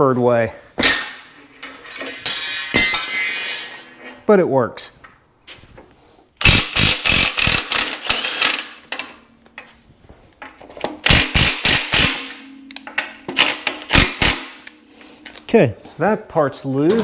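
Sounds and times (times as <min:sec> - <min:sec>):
impact wrench hammering: 0:06.4 - 0:09.2, 0:11.0 - 0:14.7.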